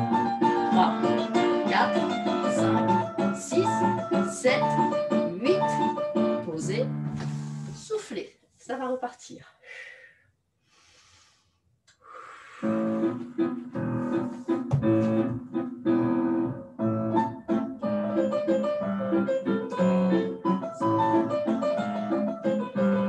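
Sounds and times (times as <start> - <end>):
piano music: 0.0 - 7.8, 12.6 - 23.0.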